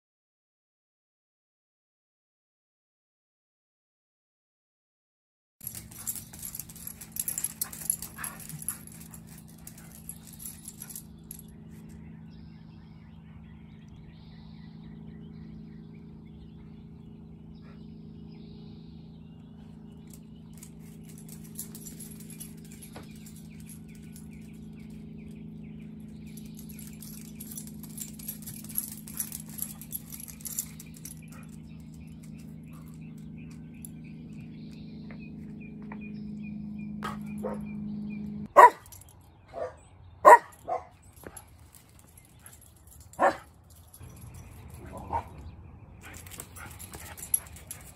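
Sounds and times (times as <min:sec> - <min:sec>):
collar tags jingling: 0:05.6 - 0:15.1, 0:17.6 - 0:47.9
steady low hum: 0:05.6 - 0:47.9
dog barking loudly: 0:37.0 - 0:37.7, 0:38.5 - 0:38.9, 0:39.5 - 0:40.9, 0:43.2 - 0:43.5, 0:44.8 - 0:45.4
dog yapping: 0:37.0 - 0:37.7, 0:38.6 - 0:38.9, 0:39.5 - 0:40.9, 0:43.2 - 0:43.5, 0:44.8 - 0:45.4.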